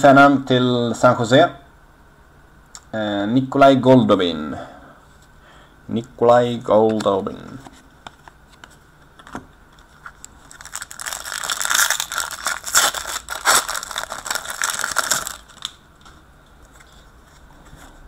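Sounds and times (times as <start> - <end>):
card packaging crinkling: 9.8 - 16.2.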